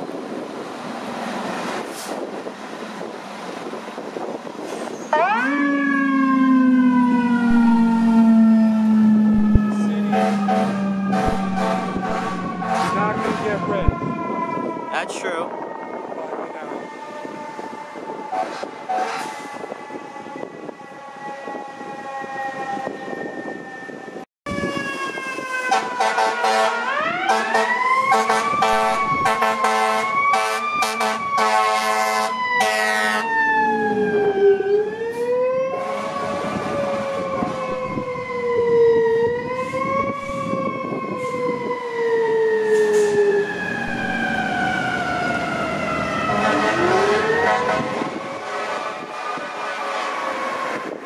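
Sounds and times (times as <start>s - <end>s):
sirens wailing: 0.0s - 51.0s
air horn blasts: 9.4s - 13.8s, 18.3s - 19.3s, 25.7s - 33.3s, 46.3s - 50.2s.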